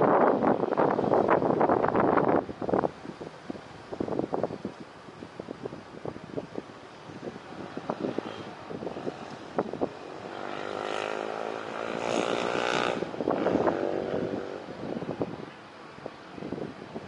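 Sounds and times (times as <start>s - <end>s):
wind buffeting microphone: 0.0s - 17.0s
motorbike engine passing: 7.7s - 15.0s.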